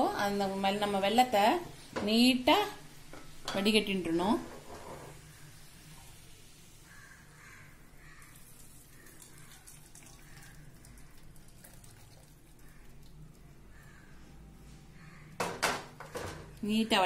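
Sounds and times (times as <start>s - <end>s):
faint trickle of liquid: 8.2s - 14.1s.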